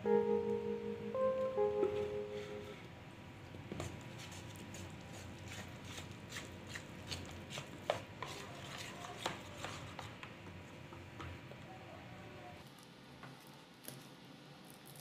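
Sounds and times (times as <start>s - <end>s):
spoon stirring in a plastic bowl: 3.8s - 10.8s.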